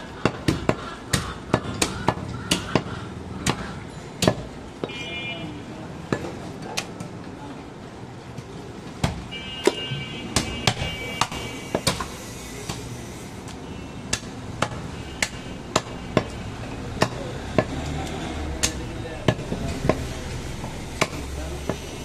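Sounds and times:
cleaver chopping meat on wooden block: 0.2 - 4.5, 14.1 - 18.0, 20.6 - 21.9.

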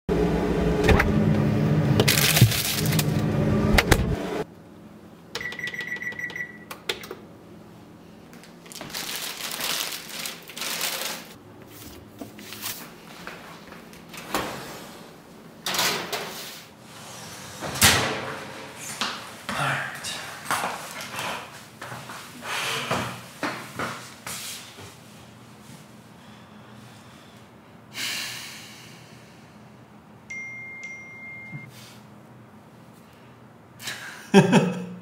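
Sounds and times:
control panel beeping: 5.4 - 6.8
oven door opening: 15.6 - 16.4, 17.6 - 18.5.

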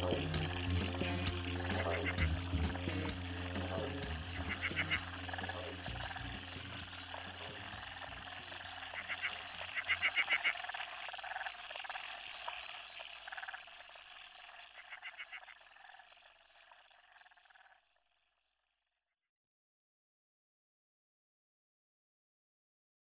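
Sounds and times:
rapid pulsing animal calls: 0.0 - 17.8.

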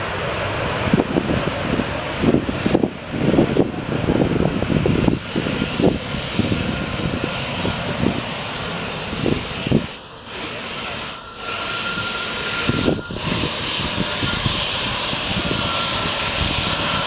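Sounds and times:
jet engines low rumbling: 0.0 - 17.0
faint steady whine: 3.6 - 17.0.

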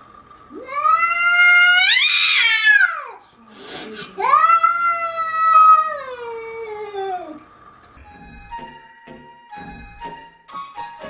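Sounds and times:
animal wailing cries: 0.6 - 3.2, 3.9 - 7.5.

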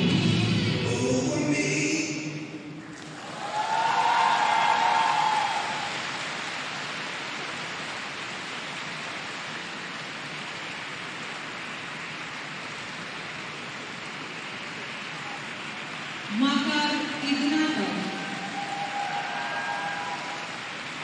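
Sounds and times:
audience applause: 2.9 - 16.3, 17.9 - 21.0.

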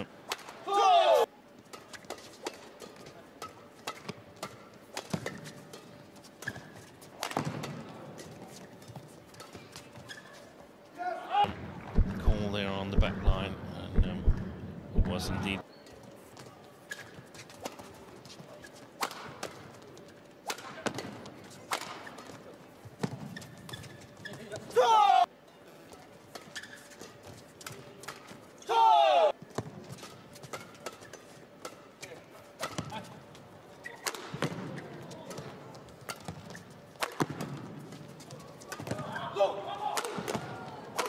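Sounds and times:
rackets hitting shuttlecock: 1.7 - 7.9, 29.6 - 33.1, 33.9 - 38.0, 39.9 - 41.0.

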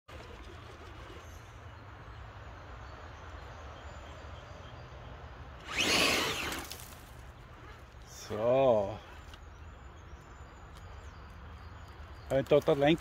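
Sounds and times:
rc car electric motor revving: 5.6 - 7.9.

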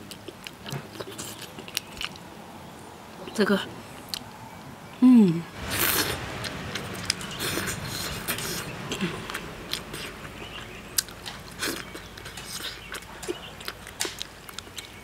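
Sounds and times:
person chewing soft food: 0.0 - 2.3, 5.6 - 15.0.

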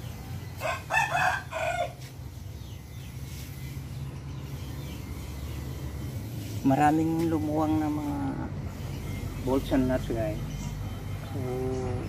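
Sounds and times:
steady low hum: 0.0 - 12.0
rooster crowing: 0.5 - 2.1.

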